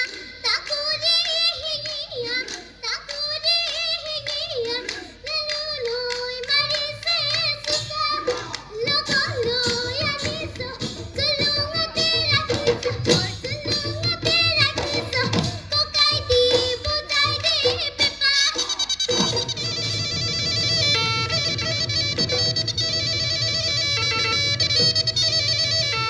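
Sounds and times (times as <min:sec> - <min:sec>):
woman singing into a microphone: 0:00.0 - 0:18.8
dhol drums: 0:05.4 - 0:26.0.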